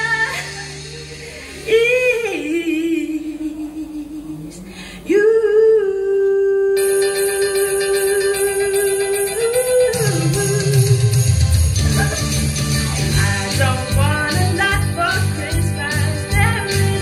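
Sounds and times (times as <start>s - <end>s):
woman singing into a microphone: 0.0s - 0.8s, 1.5s - 11.3s, 13.0s - 17.0s
backing track: 0.0s - 4.6s, 6.8s - 17.0s.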